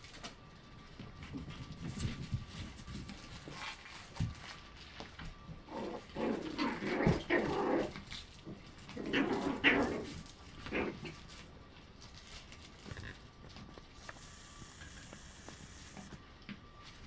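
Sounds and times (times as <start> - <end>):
dogs growling while play-fighting: 5.6 - 11.5, 12.7 - 13.6.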